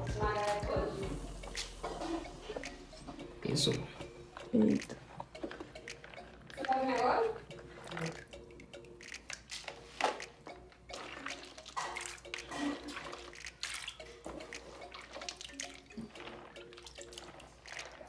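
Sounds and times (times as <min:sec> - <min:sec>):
hands splashing in water: 0:10.9 - 0:18.0.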